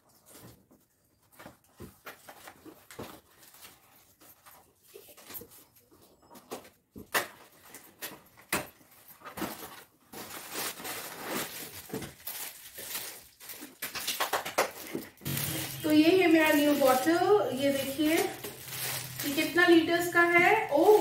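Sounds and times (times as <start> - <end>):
cardboard rustling: 6.4 - 14.1, 14.7 - 21.0
plastic wrapping crinkling: 7.5 - 21.0.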